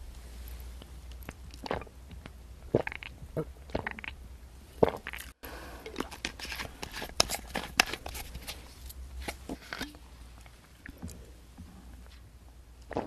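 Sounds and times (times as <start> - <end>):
gulps and swallows of drink: 4.8 - 6.6.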